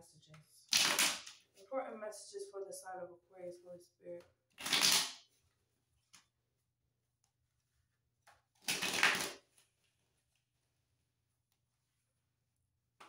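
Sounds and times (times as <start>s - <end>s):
cards riffling: 4.6s - 5.2s, 8.6s - 9.6s.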